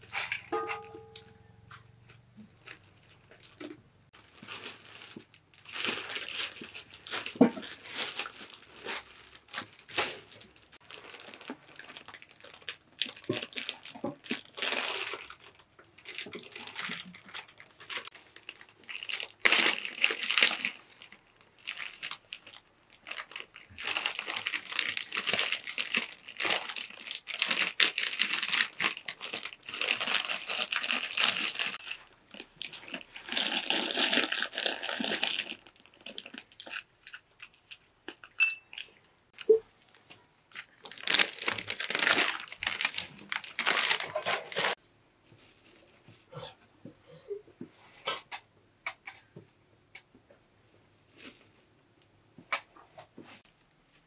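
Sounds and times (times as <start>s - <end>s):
paper crinkling and rustling: 2.6s - 38.8s, 39.9s - 46.2s.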